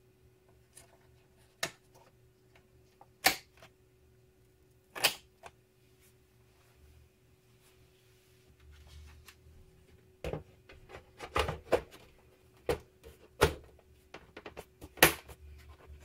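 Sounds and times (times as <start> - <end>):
plastic cover knocks and clicks: 12.6 - 15.3.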